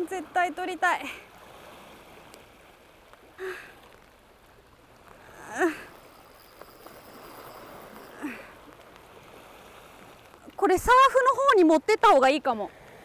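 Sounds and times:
sea and rain: 0.0 - 13.0
woman grunting: 5.3 - 5.9.

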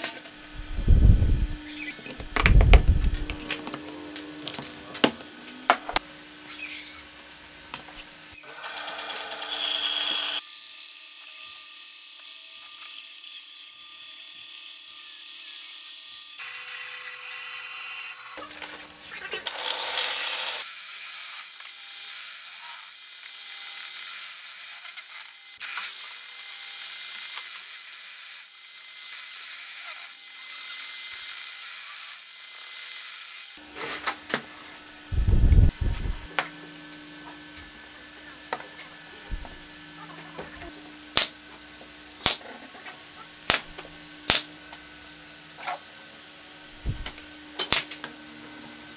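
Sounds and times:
table saw cutting board: 8.4 - 18.4, 19.4 - 34.2
power saws cutting wood: 8.4 - 18.5, 19.3 - 33.6.

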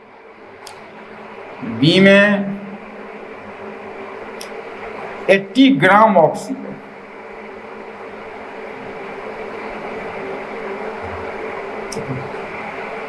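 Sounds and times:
machine humming with hiss: 0.0 - 13.0.

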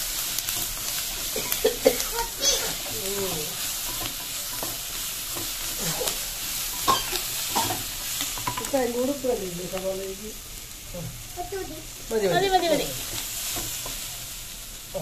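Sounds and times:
spatula stirring and scraping: 0.0 - 9.2, 12.5 - 15.0
vegetables sizzling in oil: 0.0 - 15.0.

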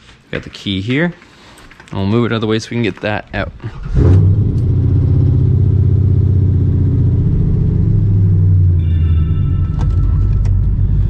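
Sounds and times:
car engine idling: 4.4 - 8.8
faint high tones: 8.7 - 11.0.

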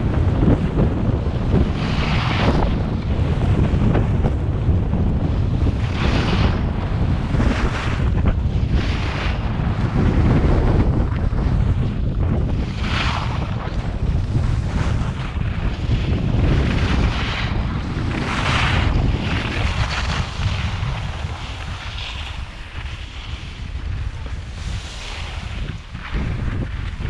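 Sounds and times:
wind buffeting microphone: 0.0 - 27.0
skis hissing on snow: 24.5 - 26.1.

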